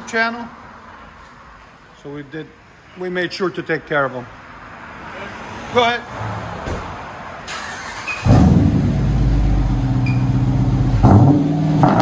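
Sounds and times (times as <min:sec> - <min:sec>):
engine starting and fast idling: 0:07.5 - 0:08.7.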